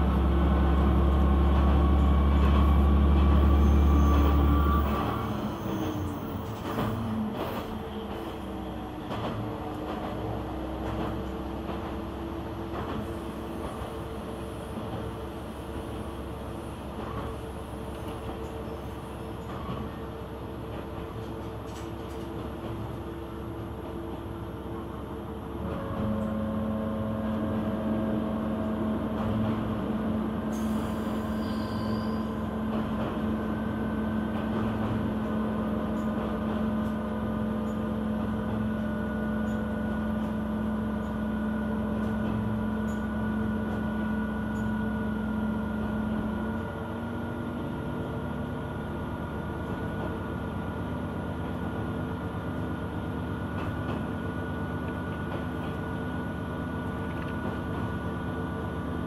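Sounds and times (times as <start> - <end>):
diesel engine drone: 0.0 - 31.5
train wheels rumbling on rails: 0.0 - 59.0.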